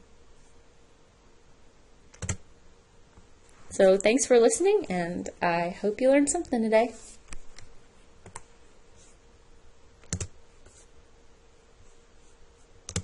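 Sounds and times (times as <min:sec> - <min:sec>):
faint steady hum: 0:00.0 - 0:13.0
computer mouse clicks: 0:10.0 - 0:10.4.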